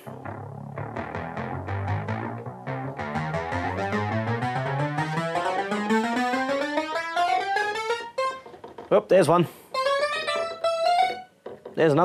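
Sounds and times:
synthesizer notes in a rising run: 0.1 - 8.1.

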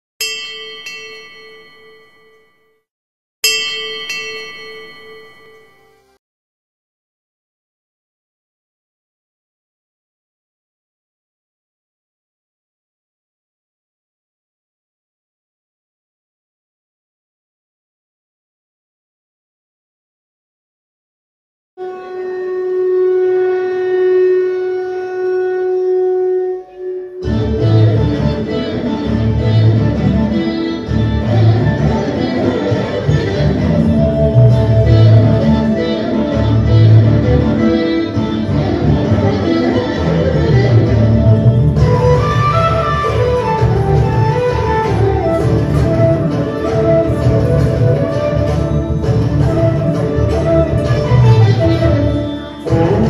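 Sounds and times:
bell ringing: 0.2 - 2.8, 3.4 - 6.2
long held wind instrument note: 21.8 - 53.0
instrumental music with plucked strings: 27.2 - 53.0.

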